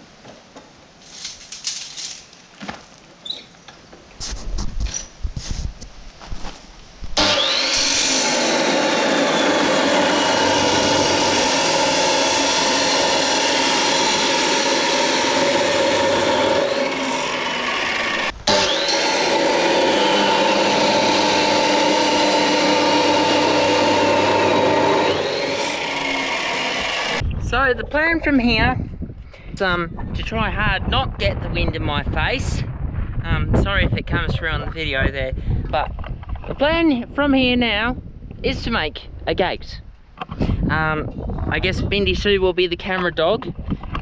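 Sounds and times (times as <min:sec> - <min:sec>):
cut-off saw grinding through steel: 0:07.2 - 0:27.2.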